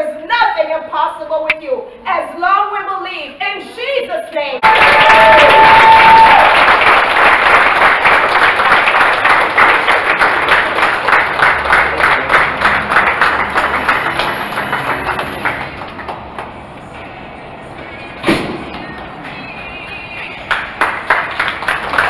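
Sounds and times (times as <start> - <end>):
crowd applauding: 4.6 - 16.6, 20.5 - 22.0.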